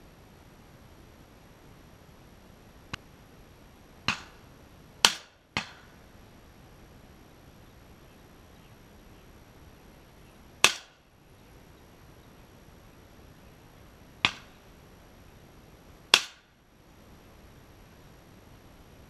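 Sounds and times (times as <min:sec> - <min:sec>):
shotgun shots: 0:10.6 - 0:11.0.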